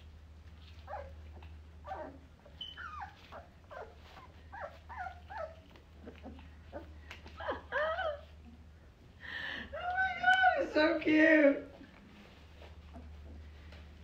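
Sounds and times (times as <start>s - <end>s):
puppy whining: 0.6s - 8.6s, 12.5s - 14.0s.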